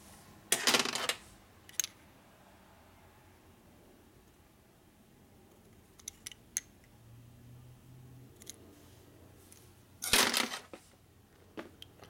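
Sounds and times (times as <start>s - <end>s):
small metal parts clicking: 1.7s - 2.0s, 6.0s - 6.7s
metal parts rattling: 10.0s - 10.8s.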